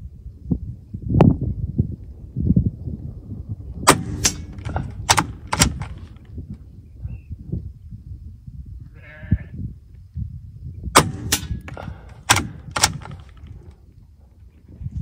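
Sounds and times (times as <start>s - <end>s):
wind rumbling on microphone: 0.0s - 15.0s
sharp cracks: 3.9s - 6.3s, 11.0s - 13.6s
animal bleating call: 8.9s - 9.6s.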